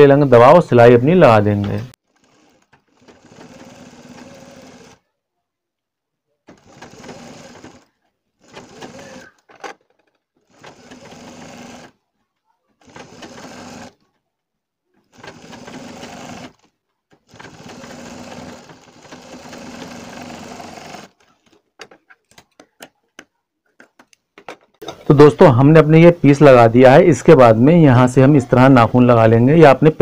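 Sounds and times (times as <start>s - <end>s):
sewing machine stitching: 2.0s - 5.1s, 6.4s - 12.1s, 12.7s - 14.2s, 15.0s - 22.1s.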